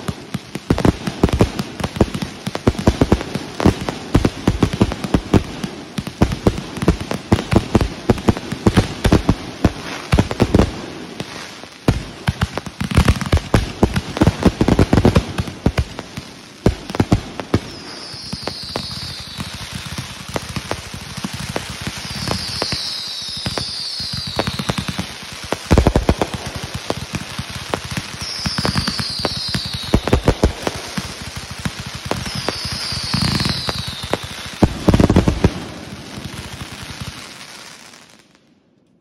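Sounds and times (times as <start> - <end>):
fireworks bangs with crackling: 0.0 - 38.4
high falling whistles: 17.8 - 19.6.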